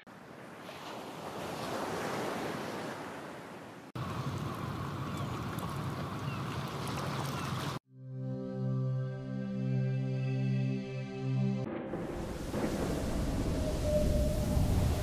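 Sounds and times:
sea waves washing: 0.0 - 7.8, 11.7 - 15.0.

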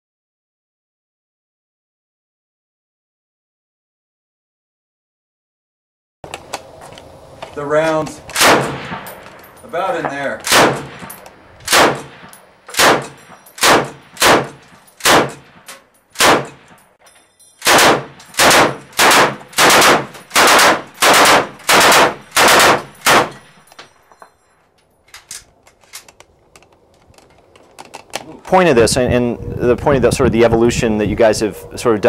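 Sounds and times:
machine gun firing short bursts: 8.4 - 9.0, 10.5 - 11.1, 11.7 - 12.2, 12.8 - 15.4, 16.2 - 16.6, 17.6 - 23.4.

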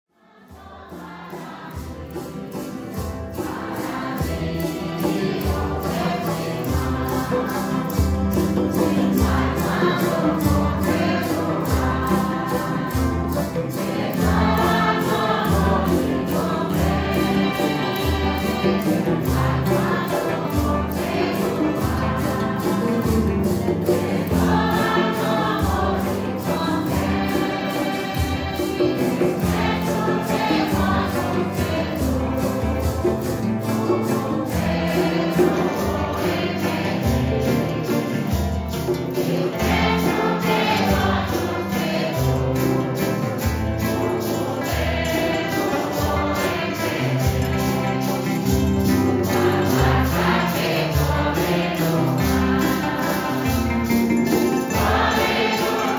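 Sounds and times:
congregation singing a hymn: 0.1 - 55.9
maracas shaking: 0.3 - 55.9
strummed acoustic guitars: 0.3 - 55.9.

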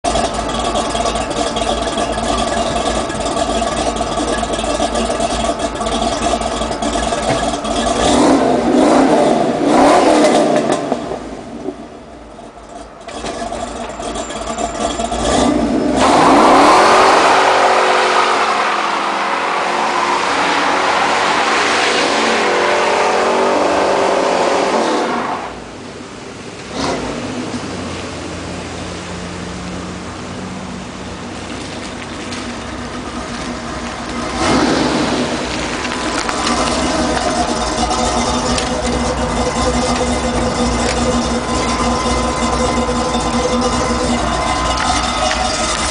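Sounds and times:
tyres spinning on wet pavement: 0.0 - 45.9
engine revving hard: 7.3 - 11.0, 15.1 - 25.6, 26.7 - 27.5, 34.2 - 45.9.

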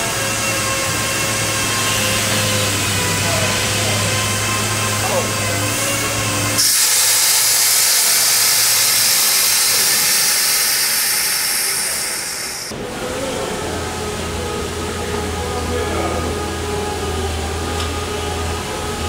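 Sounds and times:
compressed air hissing from valve: 6.6 - 12.7.

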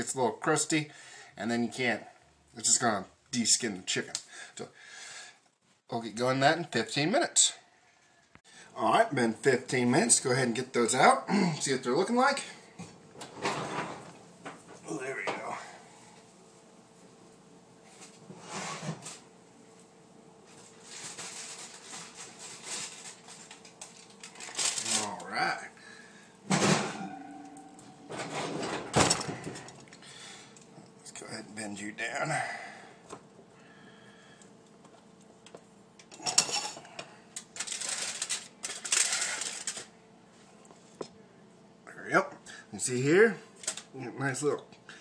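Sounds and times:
faint hum: 0.0 - 45.0
foil crinkling and scraping: 20.6 - 25.4, 37.4 - 39.9.

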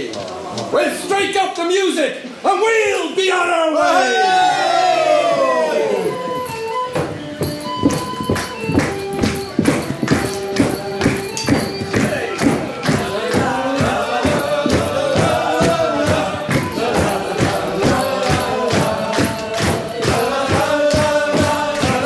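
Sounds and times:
group of voices singing: 3.8 - 6.6, 7.4 - 22.0
steady percussion beat: 5.9 - 22.0.

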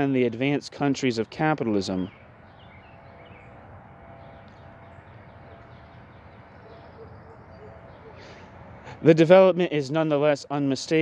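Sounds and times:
low hum: 2.0 - 9.1.

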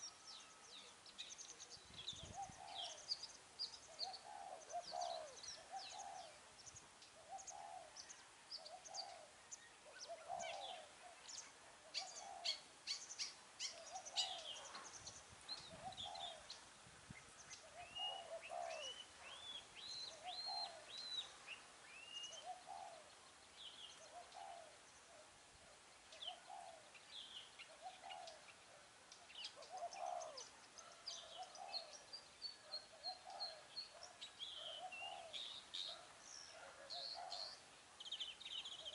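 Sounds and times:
small birds chirping and whistling: 0.0 - 24.7, 26.1 - 38.9
dove cooing: 1.6 - 3.2, 3.9 - 6.5, 7.2 - 12.8, 13.6 - 14.9, 15.6 - 16.5, 17.6 - 21.4, 22.3 - 23.2, 23.9 - 27.0, 27.7 - 37.7.

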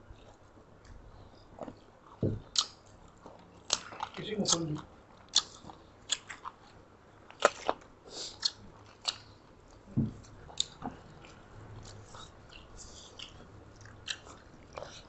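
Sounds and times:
chewing: 0.1 - 15.0
low thump: 2.2 - 2.4, 10.0 - 10.2
wet mouth clicks and smacks: 2.5 - 2.8, 5.3 - 6.6.

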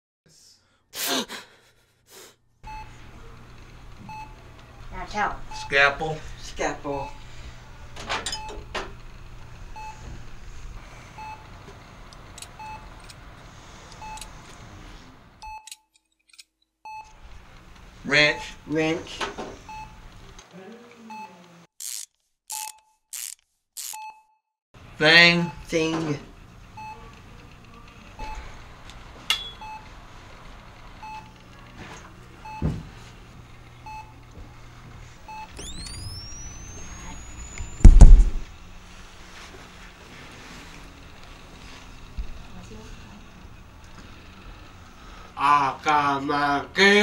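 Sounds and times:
steady low hum: 2.6 - 15.4, 25.5 - 46.6
monitor beeping: 2.7 - 10.4, 11.1 - 11.6, 12.3 - 13.0, 13.9 - 14.4, 19.6 - 20.0, 31.0 - 31.3, 35.3 - 38.4
short electronic beep: 35.3 - 38.2
dull thump: 37.8 - 38.5.

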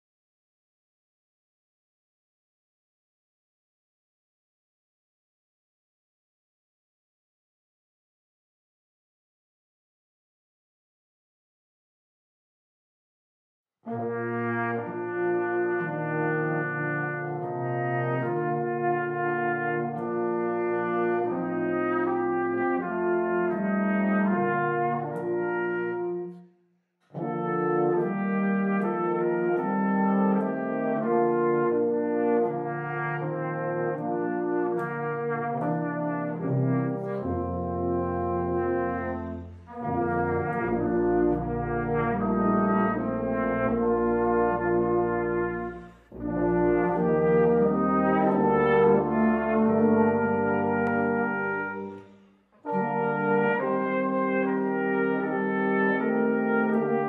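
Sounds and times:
brass band playing a hymn: 13.9 - 26.4, 27.1 - 57.0.

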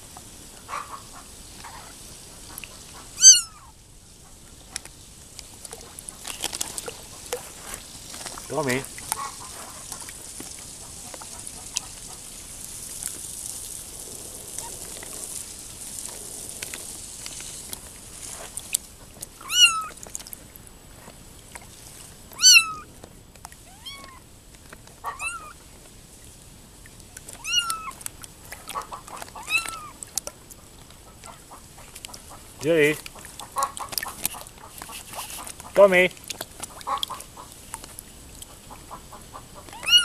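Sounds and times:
kittens mewing: 3.2 - 3.7, 14.5 - 15.4, 19.4 - 20.0, 22.4 - 22.9, 23.7 - 24.2, 25.0 - 25.6, 27.4 - 28.0, 29.4 - 30.0, 39.7 - 40.0
water sloshing: 4.4 - 40.0.

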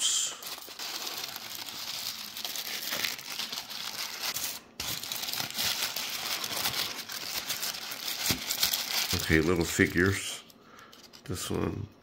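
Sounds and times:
packaging rustling: 0.2 - 11.3.

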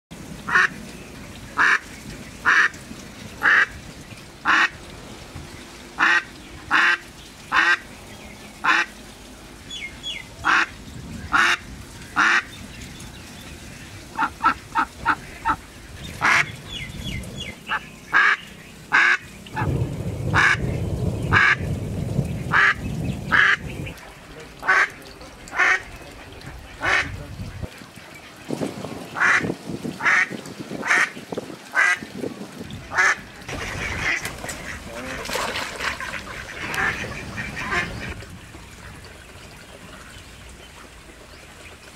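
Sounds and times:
duck quacking: 4.5 - 4.8, 6.0 - 7.8, 10.4 - 10.7, 11.3 - 11.6, 16.2 - 16.5, 18.2 - 19.7, 22.5 - 23.6, 24.6 - 25.9, 26.7 - 27.2, 29.2 - 29.4, 36.1 - 38.2
low rumble: 19.4 - 27.7.

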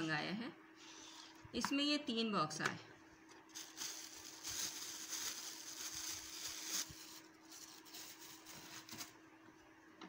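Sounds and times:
faint steady hum: 0.0 - 10.0
plastic wrapping crinkling: 3.4 - 9.2.

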